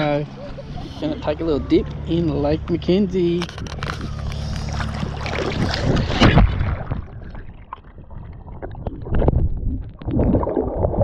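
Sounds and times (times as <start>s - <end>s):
water splashing against camera: 3.3s - 11.0s
muffled underwater sloshing: 3.5s - 11.0s.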